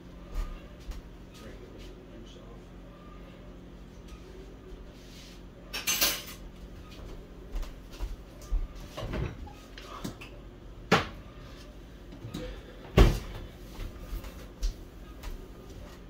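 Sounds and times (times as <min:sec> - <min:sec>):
kitchen items knocking and clunking: 0:08.9 - 0:09.5, 0:10.9 - 0:11.2.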